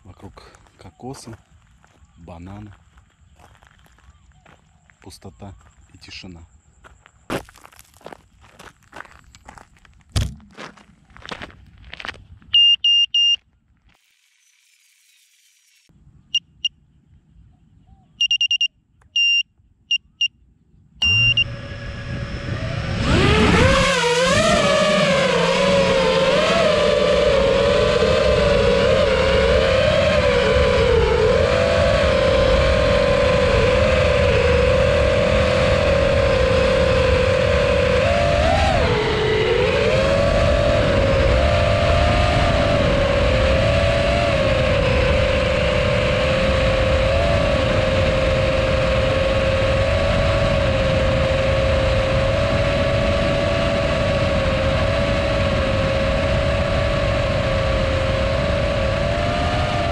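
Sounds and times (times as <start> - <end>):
drone motors buzzing whine: 10.2 - 16.4, 21.0 - 59.9
short electronic beeps: 12.5 - 13.4, 16.3 - 16.8, 18.2 - 20.4, 21.0 - 21.6.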